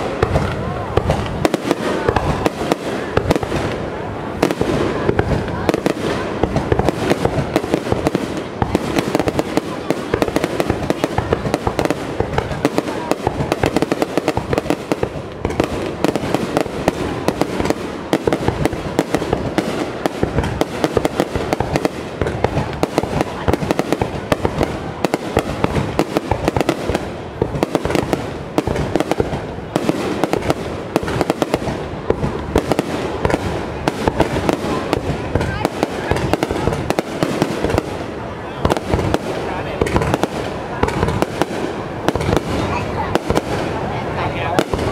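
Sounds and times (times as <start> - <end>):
fireworks bangs and crackling: 0.0 - 44.9.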